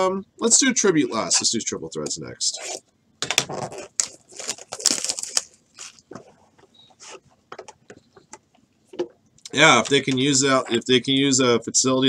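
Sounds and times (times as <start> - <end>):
cardboard box tearing: 3.6 - 6.0.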